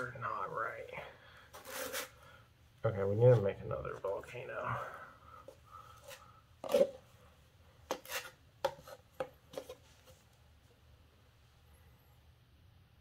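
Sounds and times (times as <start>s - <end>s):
drywall knife scraping metal: 7.9s - 9.0s.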